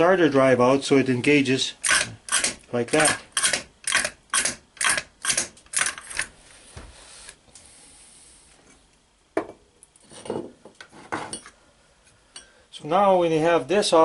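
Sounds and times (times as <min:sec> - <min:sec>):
starter motor metallic clacks: 0:01.8 - 0:06.3.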